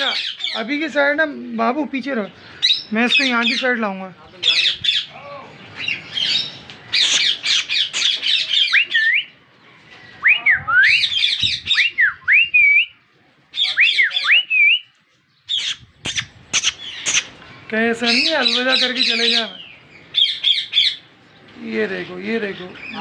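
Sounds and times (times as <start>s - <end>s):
parakeets squawking: 0.0s - 0.9s, 2.3s - 9.3s, 11.0s - 11.9s, 15.5s - 17.4s, 18.0s - 21.1s
rising whistled calls: 5.8s - 9.4s, 10.1s - 13.0s, 13.6s - 14.9s.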